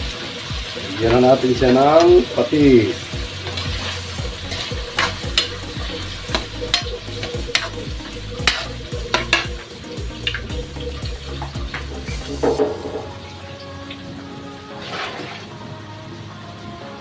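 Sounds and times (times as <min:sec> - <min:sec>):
meat sizzling: 0:00.0 - 0:13.4
metal spatula scraping wok: 0:03.4 - 0:09.6.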